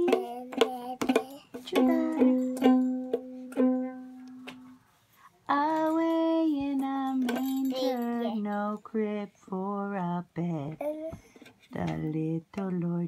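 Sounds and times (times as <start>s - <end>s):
ukulele strumming: 0.0s - 4.7s.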